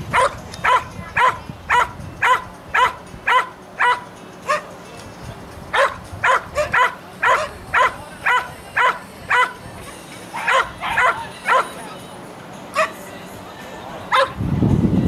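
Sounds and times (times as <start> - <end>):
dog barking: 0.1 - 4.7, 5.7 - 9.6, 10.4 - 11.7, 12.8 - 13.0, 14.1 - 14.4.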